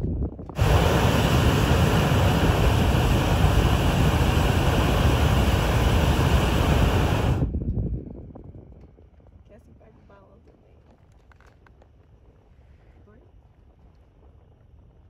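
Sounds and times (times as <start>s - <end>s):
propane burner roaring: 0.5s - 7.6s.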